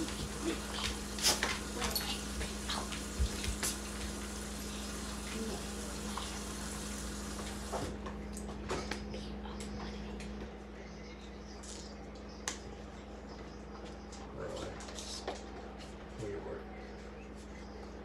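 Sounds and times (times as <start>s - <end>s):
running water from tap: 0.0s - 7.9s
low steady hum: 0.0s - 18.0s.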